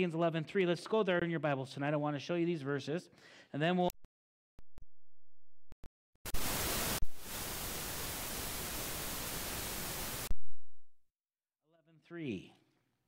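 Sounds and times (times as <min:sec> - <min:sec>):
static hiss: 0:06.3 - 0:10.3.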